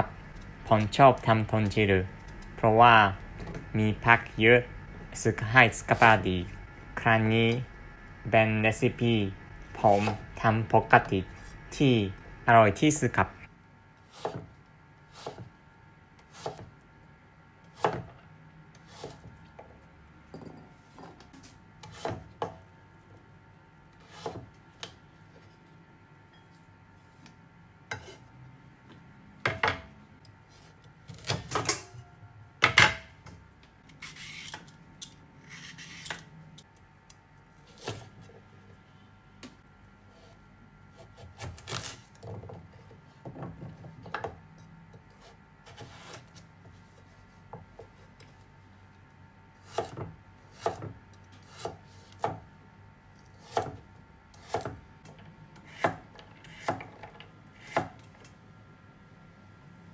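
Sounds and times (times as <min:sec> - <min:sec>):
knife scraping board: 0:09.8 - 0:10.2, 0:14.1 - 0:14.5, 0:15.1 - 0:15.5, 0:16.3 - 0:16.7, 0:18.8 - 0:19.3, 0:21.4 - 0:22.2, 0:24.0 - 0:24.4, 0:27.9 - 0:28.3, 0:34.0 - 0:34.6, 0:35.4 - 0:36.3, 0:45.1 - 0:46.4
knife chopping on wooden board: 0:14.2 - 0:14.6, 0:15.2 - 0:15.5, 0:16.3 - 0:16.7, 0:17.8 - 0:18.2, 0:21.8 - 0:22.6, 0:24.0 - 0:25.0, 0:49.6 - 0:52.5, 0:53.4 - 0:53.8, 0:54.4 - 0:54.8, 0:55.6 - 0:56.9.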